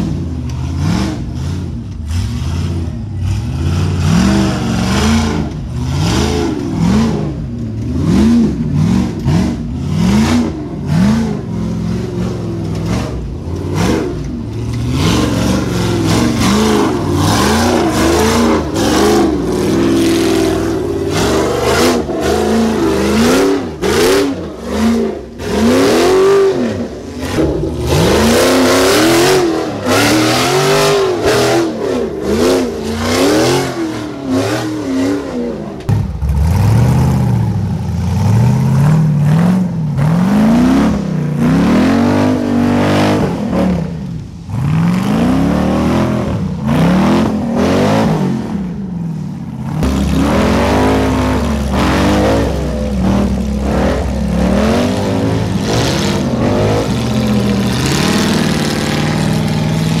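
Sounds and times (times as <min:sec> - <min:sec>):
buggy engines revving hard: 0:00.0 - 1:00.0.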